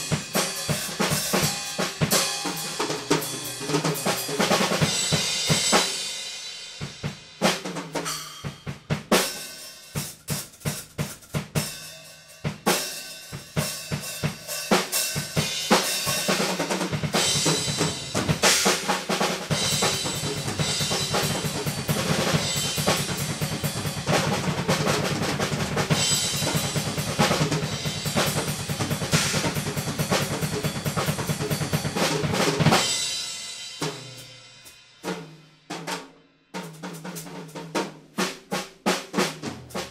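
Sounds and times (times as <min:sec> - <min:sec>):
drum kit played solo: 0:00.0 - 0:39.9.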